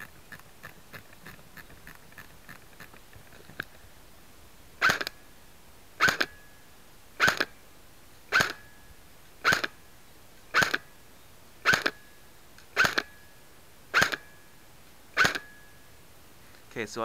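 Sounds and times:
airsoft gun single shots: 4.8 - 5.2, 6.0 - 6.4, 7.2 - 7.6, 8.3 - 8.7, 9.4 - 9.8, 10.5 - 10.9, 11.6 - 12.0, 12.7 - 13.2, 13.9 - 14.4, 15.2 - 15.6.

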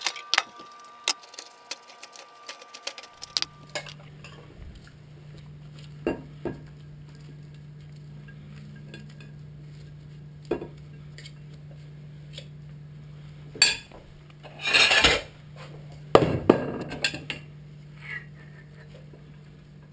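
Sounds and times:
steady low hum: 0.0 - 19.9.

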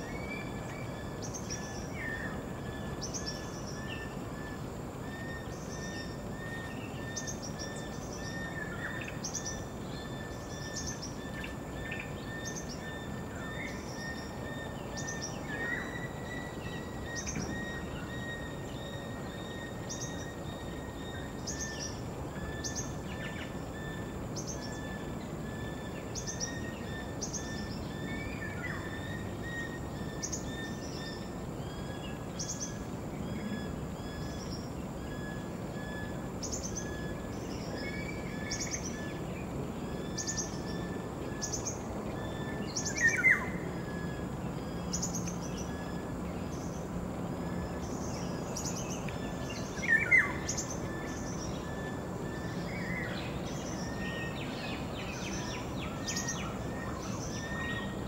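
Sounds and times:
high insect drone: 0.0 - 58.0
low background hiss: 0.0 - 58.0
small birds chirping: 36.4 - 58.0.

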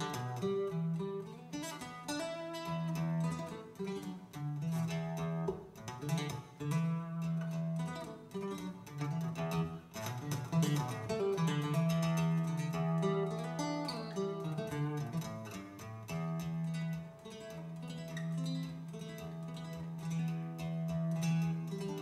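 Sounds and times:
instrumental guitar music: 0.0 - 22.0.

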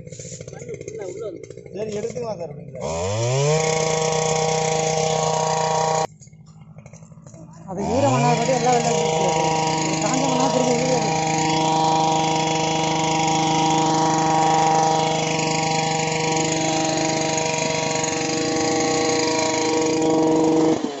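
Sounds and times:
earth auger engine running: 0.0 - 21.0.

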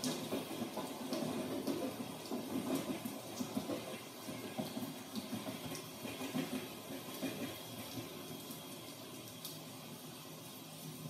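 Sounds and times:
steady rain: 0.0 - 11.0
train rumble: 0.1 - 8.2.

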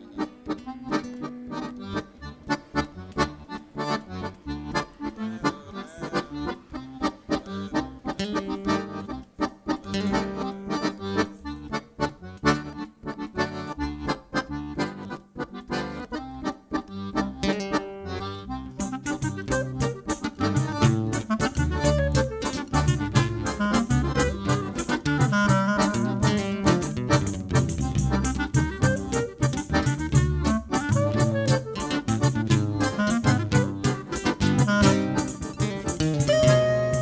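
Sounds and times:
live band playing: 0.0 - 14.9, 15.6 - 37.0
accordion: 0.0 - 37.0.

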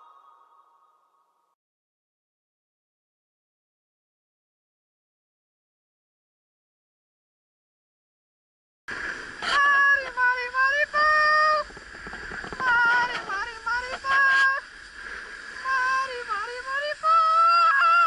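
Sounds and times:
person singing wordless high notes: 0.0 - 1.2
skis hissing on snow: 8.9 - 18.0.

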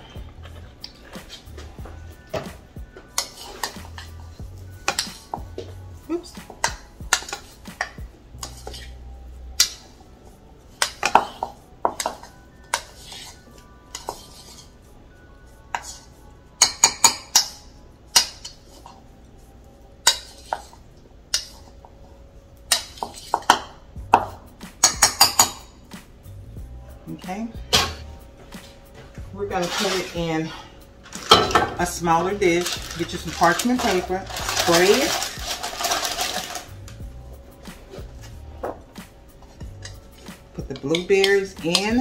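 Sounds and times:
spoon clinking against a bowl: 10.8 - 14.7, 15.7 - 18.8, 20.0 - 21.7, 22.7 - 25.7, 39.8 - 42.0.

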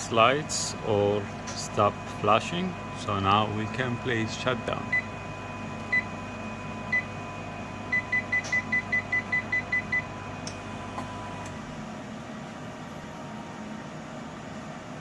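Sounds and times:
machine hum: 0.0 - 15.0
control panel beeps: 4.9 - 5.2, 7.9 - 10.1.

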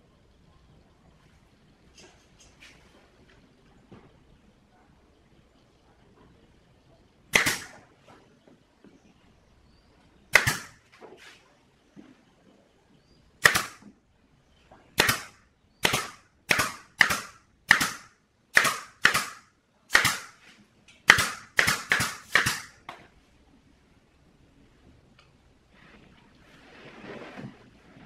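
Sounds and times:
pneumatic nail gun firing: 7.4 - 7.8, 10.4 - 10.8, 13.4 - 13.9, 15.0 - 20.4, 21.1 - 22.8.

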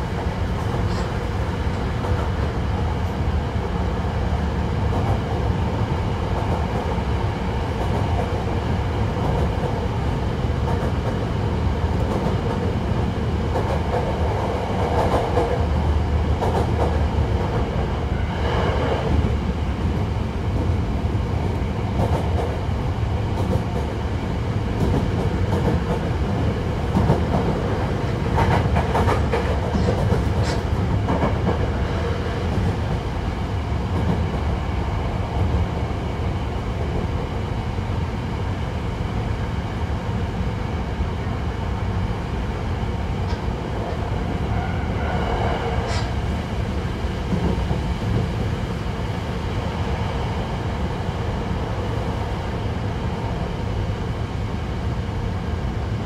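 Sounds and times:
train wheels rumbling on rail: 0.0 - 56.0
rail clacks: 0.1 - 3.2, 4.8 - 5.6, 7.7 - 9.8, 10.6 - 20.8, 21.4 - 22.6, 23.3 - 24.0, 24.7 - 33.1, 33.8 - 34.6, 43.2 - 48.6.

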